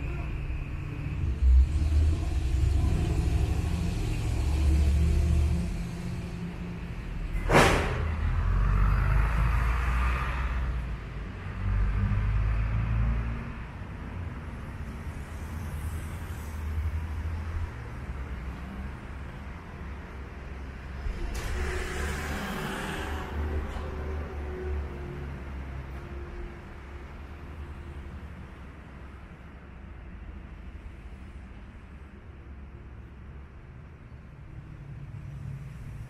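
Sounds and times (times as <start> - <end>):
passing vehicle traffic rumble: 0.0 - 36.0
sharp knock: 7.4 - 8.1.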